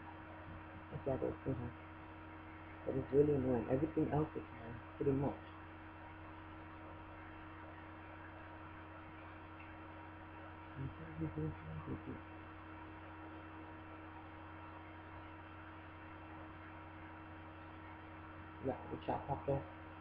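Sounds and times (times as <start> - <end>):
electrical mains hum: 0.0 - 20.0
person murmuring: 10.8 - 12.2.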